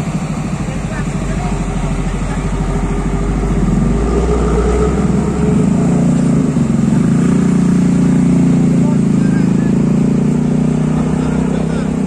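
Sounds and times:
truck diesel engine pulling away: 0.0 - 12.0.

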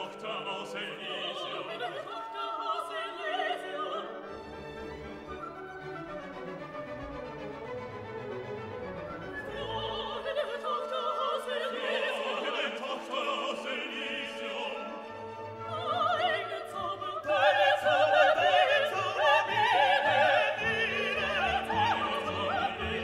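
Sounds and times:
operatic voice singing: 0.0 - 4.2, 9.6 - 15.0, 15.7 - 23.0
orchestra playing: 2.4 - 23.0.

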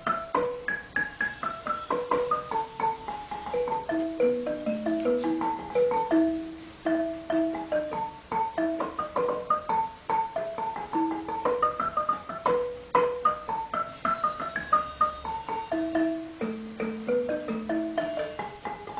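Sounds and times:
light ticking percussion beat: 0.0 - 18.9
mallet percussion melody: 0.0 - 18.9.

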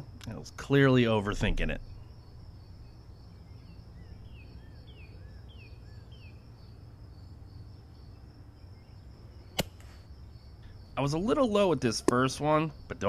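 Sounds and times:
insects chirping trill: 0.0 - 13.0
low background rumble: 0.0 - 13.0.

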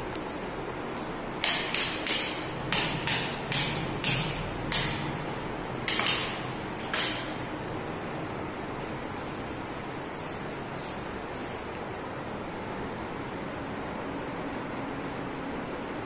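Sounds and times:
sharp slaps in a bare room: 0.9 - 5.2, 5.8 - 7.5.

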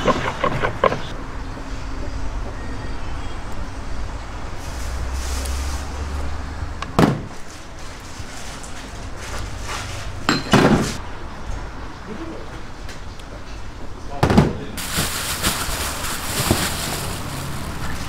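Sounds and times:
steady background noise: 0.0 - 18.0.

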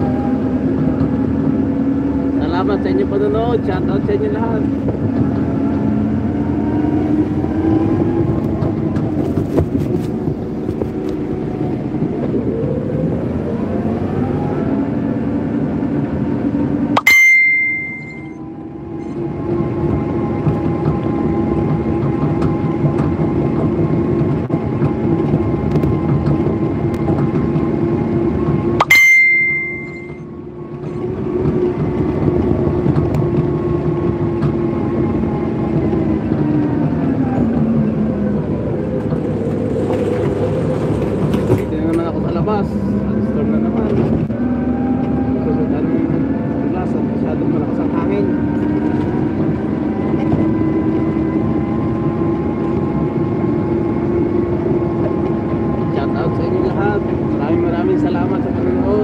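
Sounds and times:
sharp click with high ring: 17.0 - 18.4, 28.8 - 30.2.

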